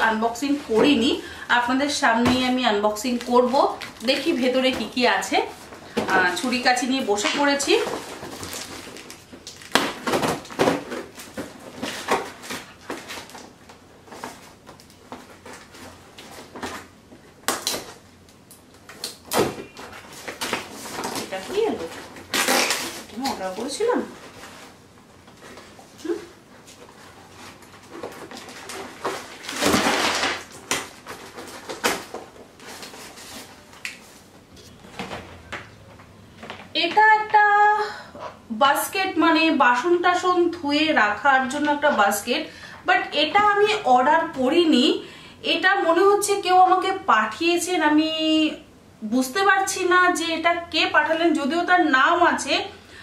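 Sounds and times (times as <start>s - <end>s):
paper rustling and crackling: 3.0s - 18.0s, 18.7s - 36.7s
paper envelope ripping: 19.9s - 24.8s, 27.4s - 34.0s.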